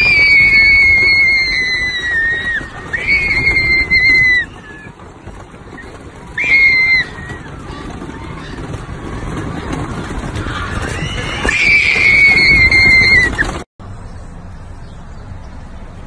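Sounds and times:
rollercoaster rushing rumble: 0.0s - 16.0s
steady background noise: 0.0s - 16.0s.

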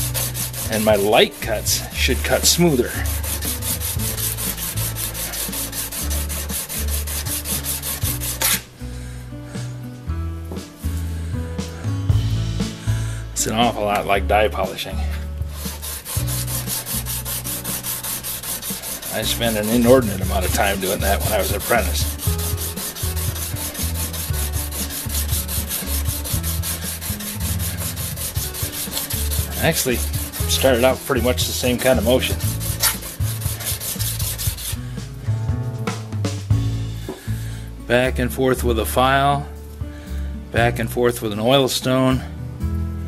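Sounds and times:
tool rubbing on sharpening plate: 0.0s - 1.1s, 2.4s - 8.7s, 15.5s - 34.8s
background music: 0.0s - 43.0s.

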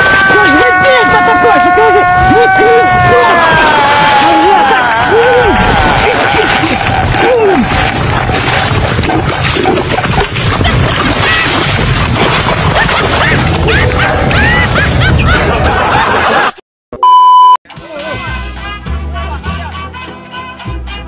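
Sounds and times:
comedy soundtrack mix: 12.7s - 16.6s, 17.7s - 21.0s
loud flat beep: 17.0s - 17.6s
bouncy music: 17.7s - 21.0s.

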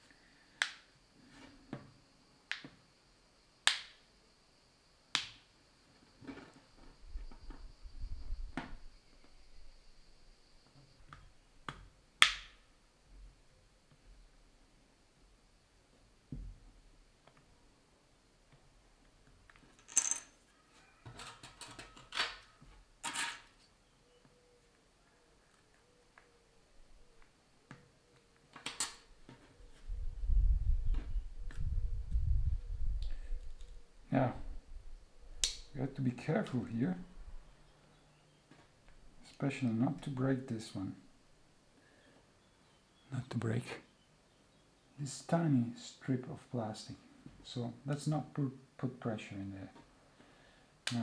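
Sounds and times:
sharp plastic snaps: 0.6s - 0.9s, 3.6s - 4.0s, 5.1s - 5.4s, 11.1s - 12.6s, 27.2s - 29.1s, 35.4s - 35.7s
scraping and handling noise: 6.1s - 7.7s, 19.5s - 23.8s
tools clattering: 19.7s - 20.3s, 23.0s - 23.7s.

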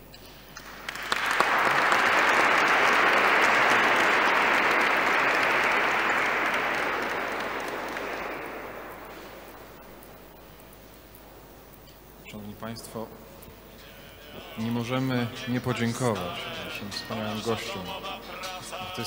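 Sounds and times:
audience applauding: 0.5s - 10.4s.

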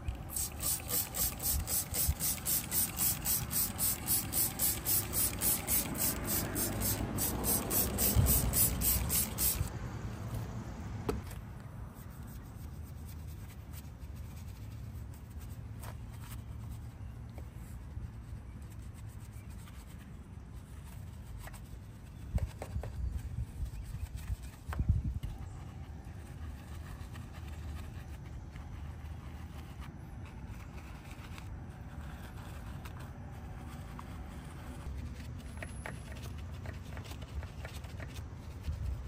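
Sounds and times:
brush scrubbing a wheel: 0.2s - 9.7s, 25.3s - 39.0s
trigger spray bottle squirting: 0.2s - 9.7s.

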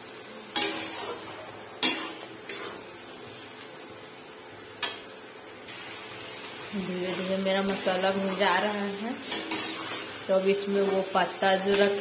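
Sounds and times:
metal spatula scraping a pan: 0.5s - 2.8s, 7.1s - 12.0s.

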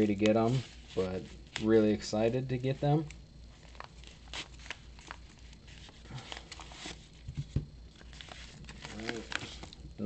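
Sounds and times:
padded mailer tearing: 8.0s - 9.8s.

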